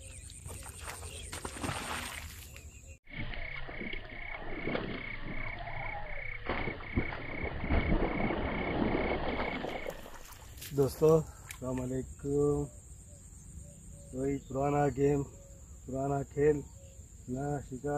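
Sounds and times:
frogs calling: 0:00.0 - 0:17.9
fish splashing at water surface: 0:06.4 - 0:10.7.

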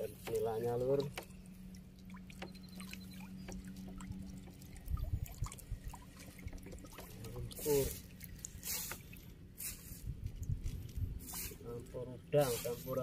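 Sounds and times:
water trickling and dripping: 0:00.0 - 0:13.0
soft low knocks: 0:00.2 - 0:07.4.

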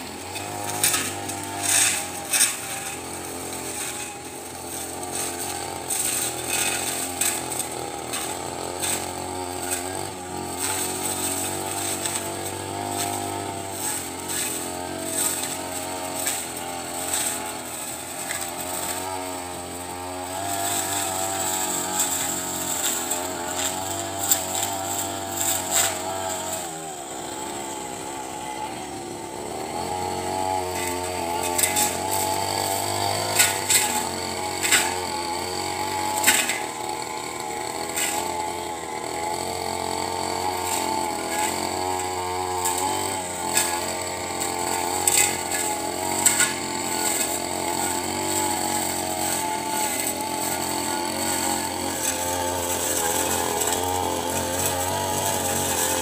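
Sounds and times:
brush cutter engine running: 0:00.0 - 0:56.0.

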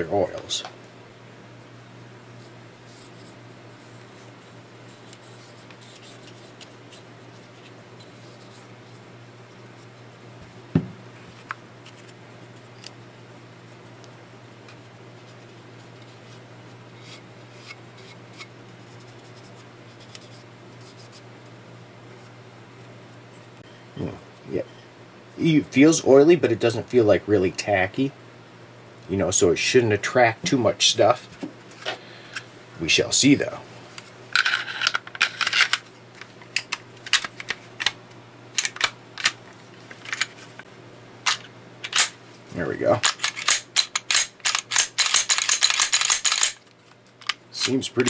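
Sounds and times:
steady low hum: 0:00.0 - 0:48.0
sharp metal clicks: 0:43.0 - 0:47.8.

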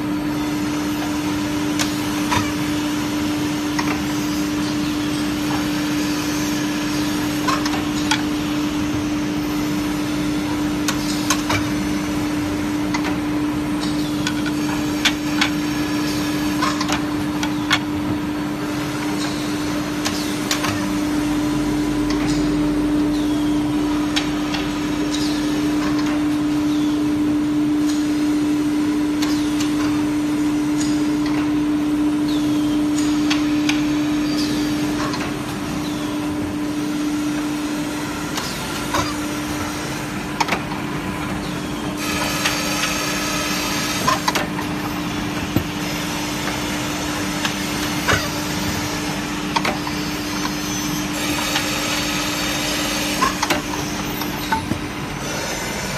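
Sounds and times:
mechanism clicks and clacks: 0:00.6 - 0:02.7, 0:03.7 - 0:05.7, 0:06.9 - 0:09.0, 0:10.4 - 0:18.2, 0:18.8 - 0:23.3, 0:24.0 - 0:26.6, 0:29.1 - 0:31.6, 0:32.2 - 0:37.6, 0:38.3 - 0:55.9
grinding machine humming: 0:30.0 - 0:55.9.

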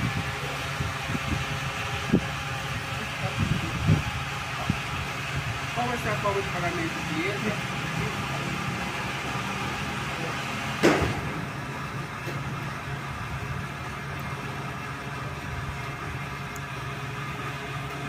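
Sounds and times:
sharp thump: 0:10.8 - 0:11.5.

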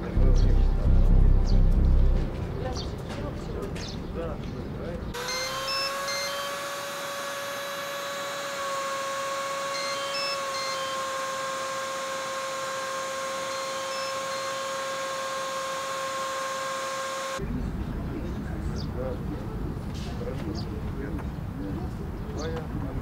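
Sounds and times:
steady electronic tone: 0:00.0 - 0:04.3, 0:05.1 - 0:17.4.

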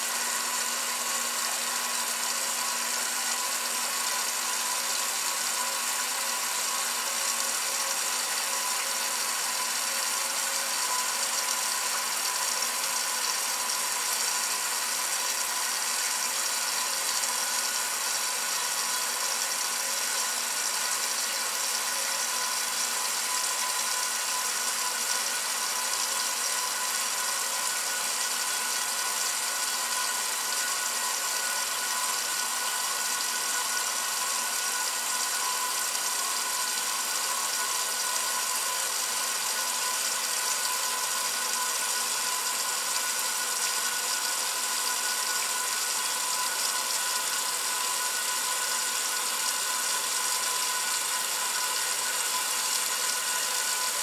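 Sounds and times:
water spraying into washer tub: 0:00.0 - 0:54.0.

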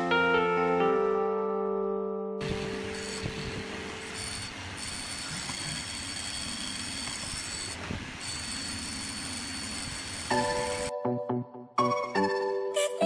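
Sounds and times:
motor high whine: 0:02.4 - 0:10.9.

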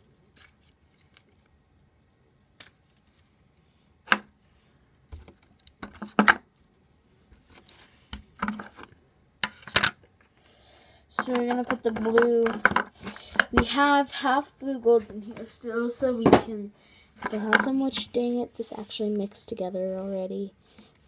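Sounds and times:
plastic containers knocking: 0:11.2 - 0:13.8.

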